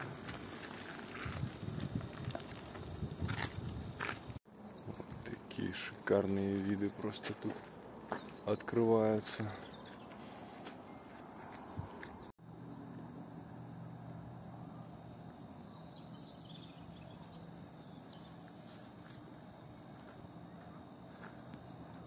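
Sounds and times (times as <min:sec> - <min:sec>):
low steady hum: 0:12.4 - 0:22.0.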